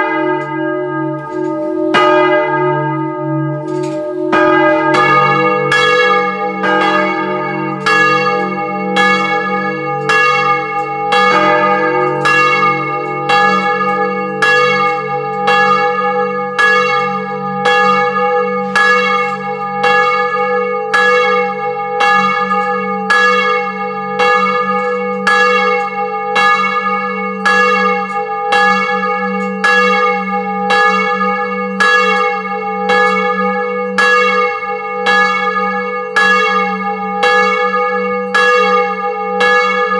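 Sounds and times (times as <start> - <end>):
church bell ringing: 0.0 - 39.9.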